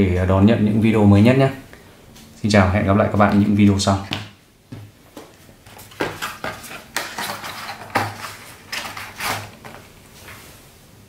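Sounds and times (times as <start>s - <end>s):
cardboard packaging rustling: 5.4s - 10.5s.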